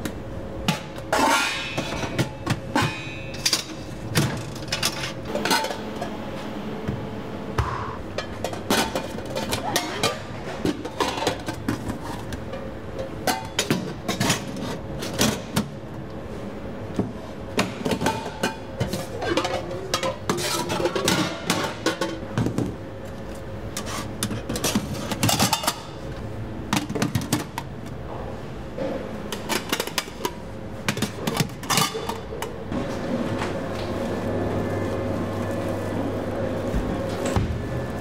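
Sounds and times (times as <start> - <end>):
steady hum: 0.0 - 38.0
metal containers clanking: 1.1 - 6.2, 8.1 - 12.3.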